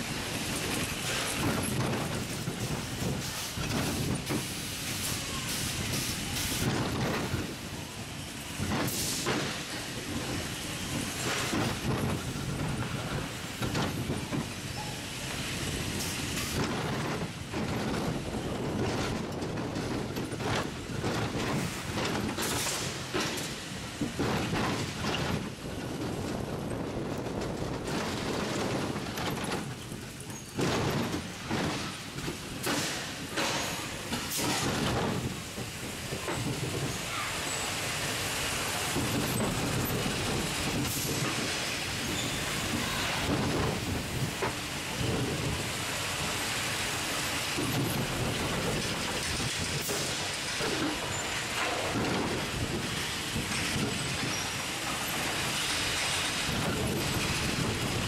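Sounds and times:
roller coaster rattling on steel rails: 0.0s - 58.0s.

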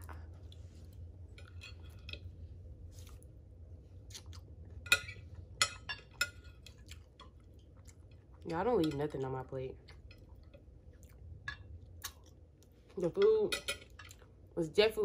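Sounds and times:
low steady hum: 0.0s - 15.0s
cutlery scraping on a plate: 1.4s - 2.2s.

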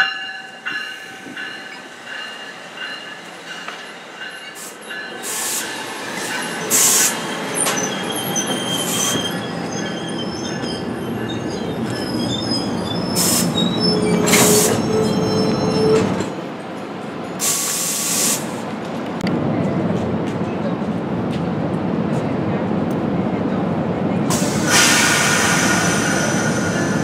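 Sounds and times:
train rumble: 0.0s - 27.0s
train wheels squealing: 0.7s - 16.3s, 24.4s - 27.0s.

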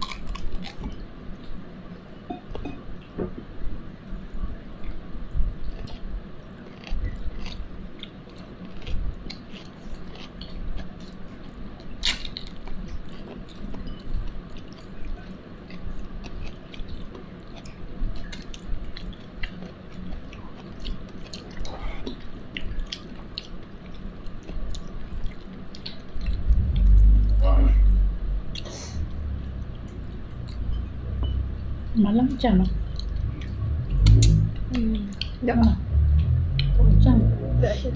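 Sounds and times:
person chewing food: 0.0s - 1.5s, 5.7s - 27.4s, 32.8s - 35.4s.

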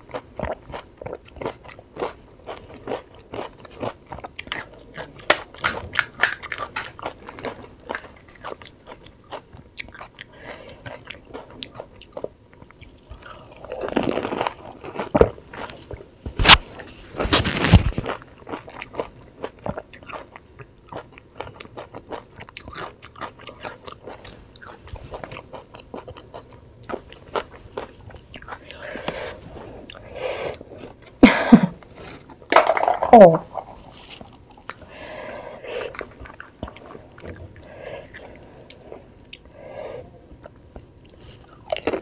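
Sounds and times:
wet chewing: 35.6s - 39.5s.

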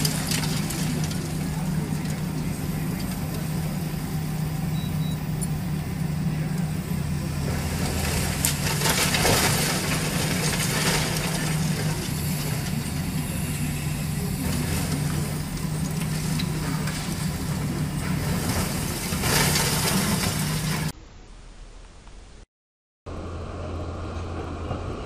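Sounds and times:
concrete crunching: 0.0s - 3.8s, 6.9s - 20.9s
rubble falling: 0.0s - 3.8s, 7.4s - 20.9s
excavator diesel engine: 0.0s - 20.9s, 23.1s - 25.0s.

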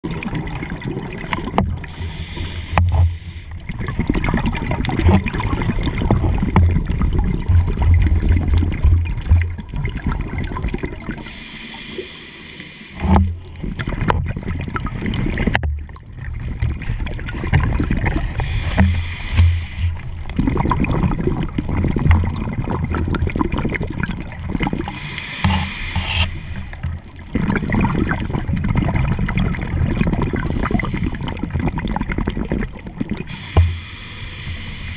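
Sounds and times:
exhaled bubbles gurgling: 0.0s - 34.9s
regulator inhalation hiss: 1.8s - 3.5s, 11.2s - 13.0s, 18.3s - 20.0s, 24.9s - 26.8s, 33.3s - 34.9s.

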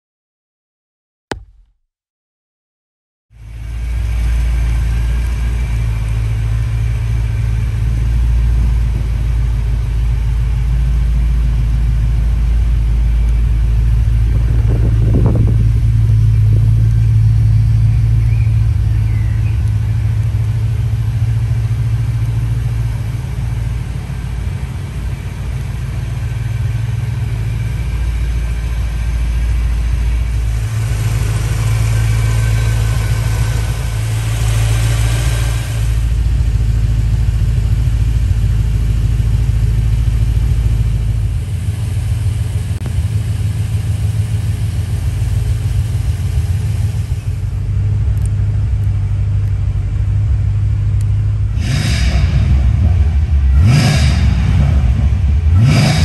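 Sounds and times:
car engine idling: 3.4s - 56.0s
bright rush of noise: 30.5s - 36.2s, 51.6s - 56.0s.

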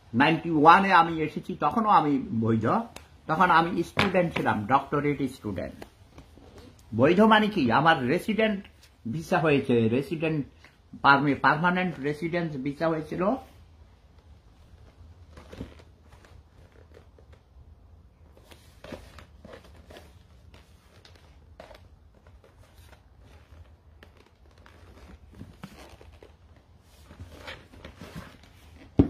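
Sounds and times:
low steady room hum: 0.0s - 29.0s
faint rustling and small clicks: 13.9s - 29.0s.

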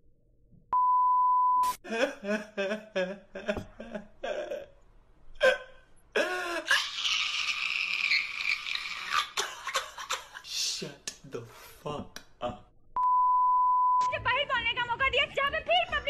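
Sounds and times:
man laughing: 1.8s - 4.8s.

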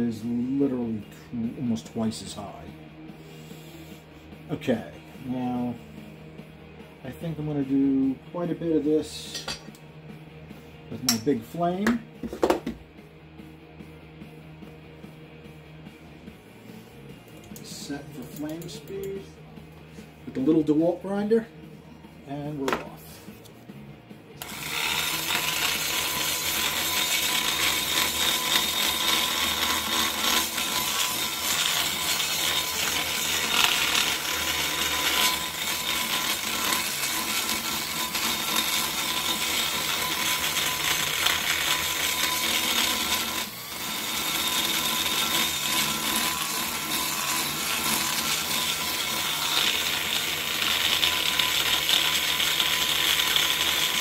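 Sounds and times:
die grinder grinding metal: 24.4s - 54.0s.

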